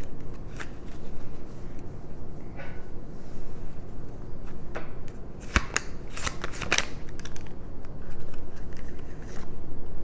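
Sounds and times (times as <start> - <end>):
cards being shuffled: 0.0 - 1.9, 5.4 - 9.6.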